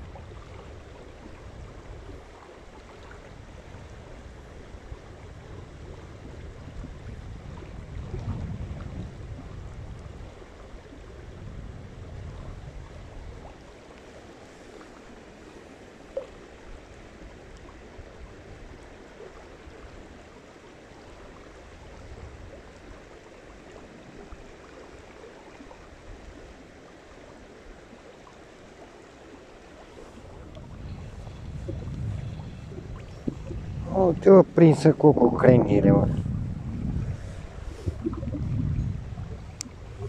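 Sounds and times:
water trickling and lapping: 0:00.0 - 0:40.0
low rumble: 0:30.0 - 0:40.0.

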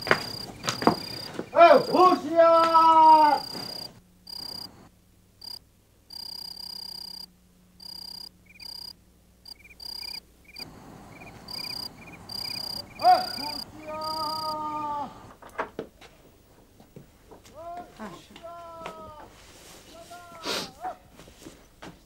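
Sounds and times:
crickets chirping: 0:00.0 - 0:15.3
animal call rising and falling: 0:00.3 - 0:04.7, 0:09.5 - 0:15.1
long animal call on one pitch: 0:00.4 - 0:04.7, 0:09.5 - 0:15.2
softer repeating chirp: 0:05.4 - 0:08.9, 0:09.5 - 0:14.6.

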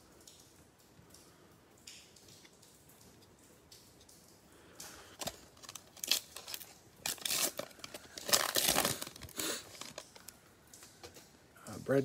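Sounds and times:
plastic wrapper tearing and crinkling: 0:05.1 - 0:10.4.

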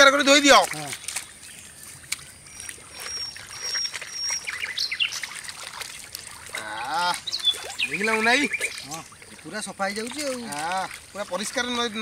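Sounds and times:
birds chirping: 0:00.0 - 0:12.0
water splashing and trickling: 0:00.0 - 0:12.0.

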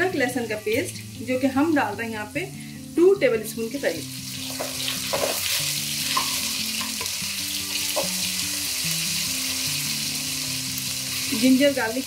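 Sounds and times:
paste sizzling in hot oil: 0:03.7 - 0:12.0.

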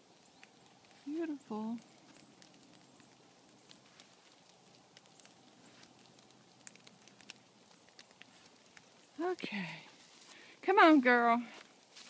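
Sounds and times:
faint light ticks and crackles: 0:00.0 - 0:12.0.

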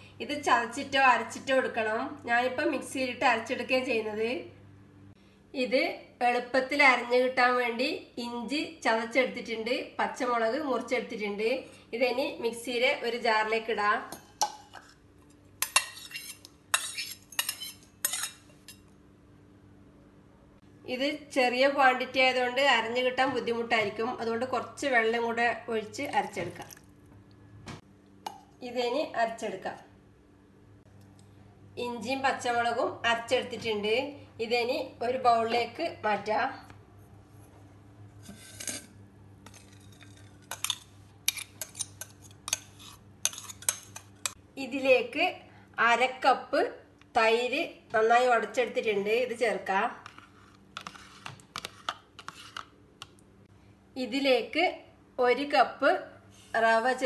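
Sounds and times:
steel jar clinking and scraping: 0:38.2 - 0:38.9.

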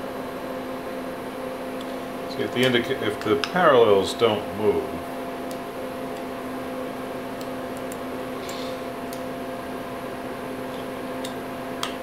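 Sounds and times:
machine hum: 0:00.0 - 0:12.0.

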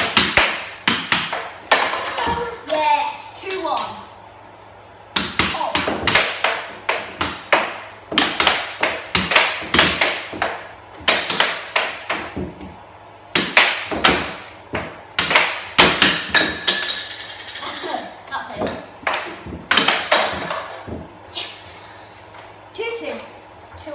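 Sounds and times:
air hockey puck clacking: 0:00.0 - 0:03.1, 0:05.1 - 0:17.9, 0:18.6 - 0:21.2.

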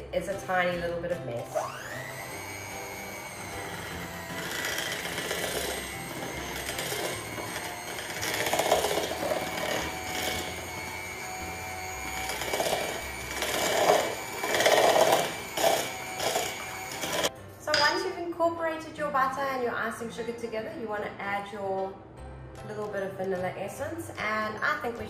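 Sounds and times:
beaters churning butter in bowl: 0:01.4 - 0:17.3
electric mixer motor whining: 0:01.4 - 0:17.3.

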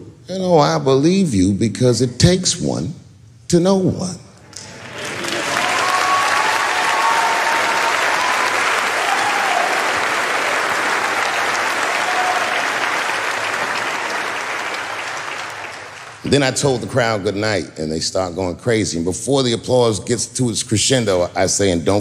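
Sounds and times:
audience applauding and cheering: 0:04.5 - 0:16.5.

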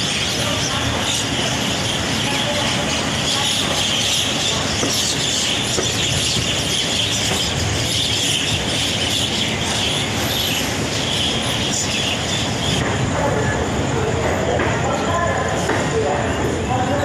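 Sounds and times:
train coaches rumbling: 0:00.0 - 0:17.0.

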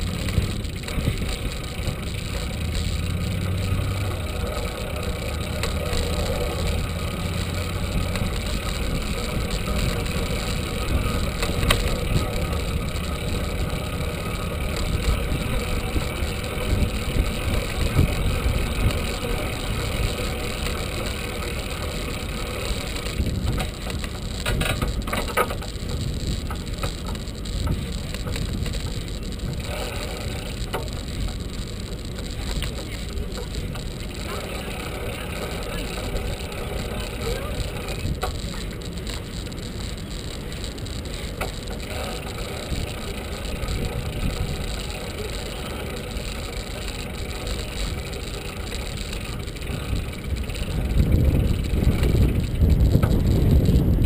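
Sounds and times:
bicycle rolling on pavement: 0:00.0 - 0:54.0
wind buffeting microphone: 0:22.8 - 0:29.6, 0:49.6 - 0:54.0.

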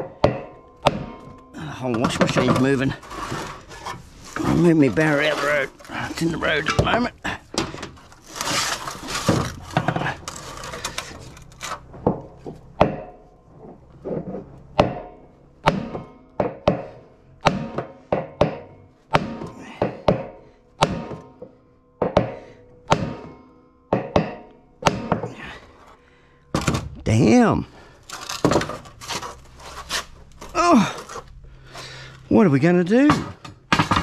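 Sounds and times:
hammer striking metal drift: 0:00.0 - 0:04.0, 0:14.8 - 0:27.4
handling noise: 0:00.0 - 0:16.1, 0:26.6 - 0:34.0.

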